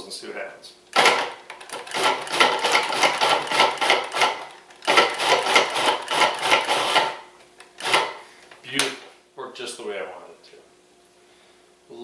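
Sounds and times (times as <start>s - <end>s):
food processor chopping: 0.9s - 8.2s.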